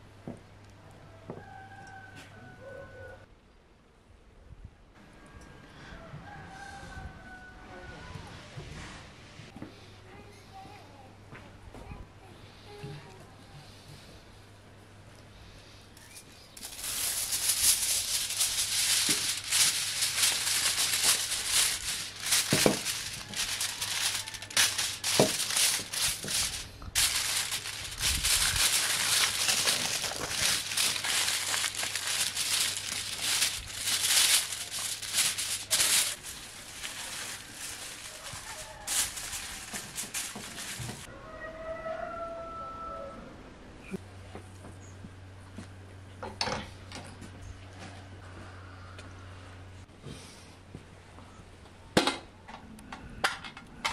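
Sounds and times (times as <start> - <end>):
aluminium foil crinkling: 16.0 - 41.1.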